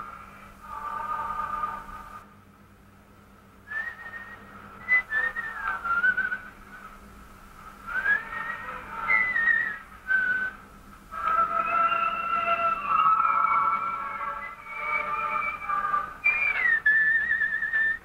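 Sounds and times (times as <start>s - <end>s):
person whistling a tune: 3.7s - 6.5s, 7.9s - 10.6s, 11.4s - 18.0s.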